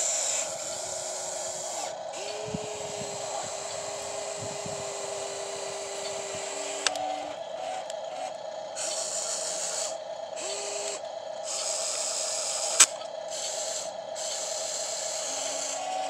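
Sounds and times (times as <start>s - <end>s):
small electric motors whirring: 0.0s - 16.0s
steady hum: 0.0s - 16.0s
sharp click: 12.7s - 13.0s.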